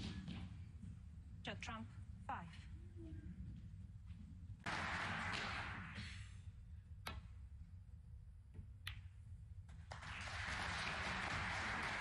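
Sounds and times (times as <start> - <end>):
audience applause: 4.7 - 6.0, 9.9 - 12.0.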